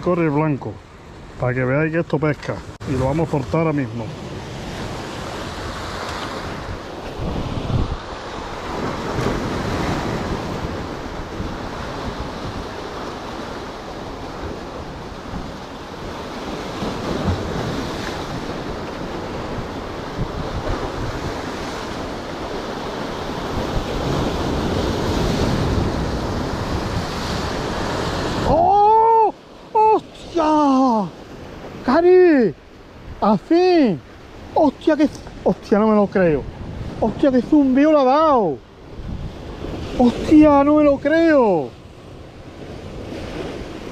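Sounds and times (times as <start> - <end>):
waves breaking over rocks: 0.0 - 43.9
wind buffeting microphone: 4.3 - 28.7, 35.1 - 37.4, 38.7 - 40.4
loud shout: 28.4 - 31.1.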